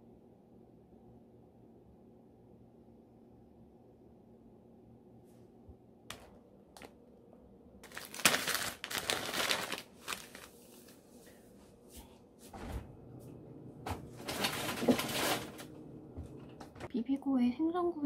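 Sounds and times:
packaging and paper bag crinkling: 0:06.1 - 0:07.0, 0:07.8 - 0:11.0, 0:14.2 - 0:15.7.

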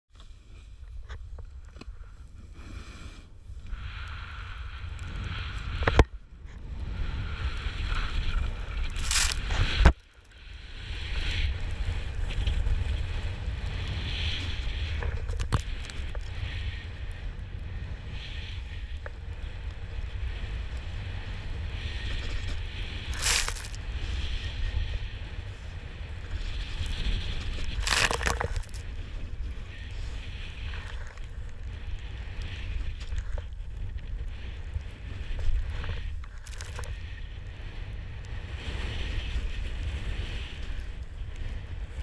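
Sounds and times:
snowboard scraping through snow: 0:06.6 - 0:09.8, 0:10.7 - 0:42.0
snow spray hitting camera: 0:08.9 - 0:09.8, 0:23.1 - 0:23.8.

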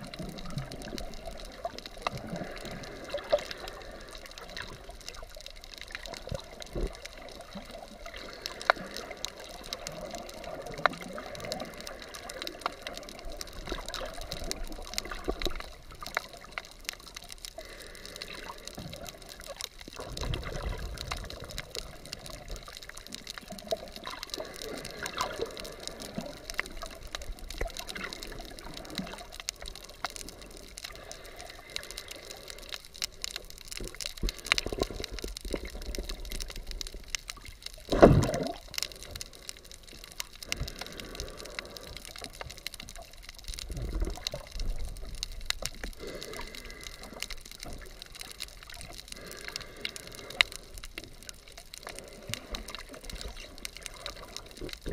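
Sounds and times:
fine crackle of clicks: 0:00.0 - 0:54.9
muffled underwater sloshing: 0:00.0 - 0:54.9
underwater whoosh: 0:37.9 - 0:38.8.

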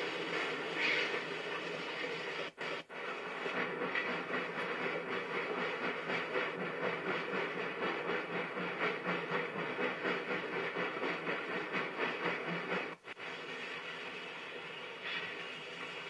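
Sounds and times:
hiss of steam: 0:00.0 - 0:06.0, 0:11.5 - 0:16.0
steam locomotive chuffing: 0:00.0 - 0:16.0.

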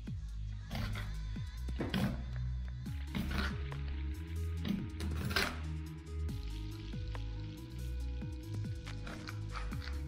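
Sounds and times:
electronic music: 0:02.9 - 0:10.0.

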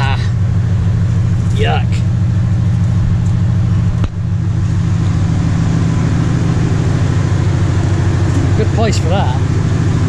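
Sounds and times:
engine idling: 0:00.0 - 0:10.0.

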